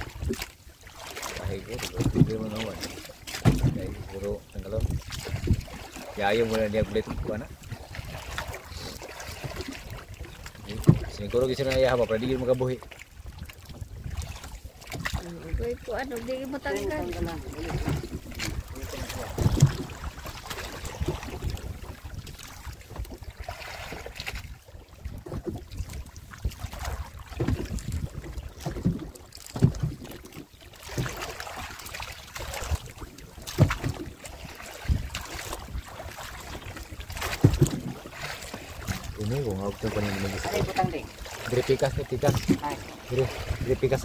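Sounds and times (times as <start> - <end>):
water sloshing against boat: 0.0 - 44.0
knocks on boat hull: 3.4 - 3.8.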